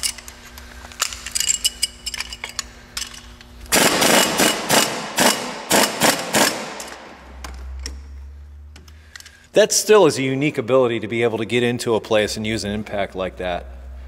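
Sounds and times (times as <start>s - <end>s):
air impact wrench hammering: 3.7s - 7.6s.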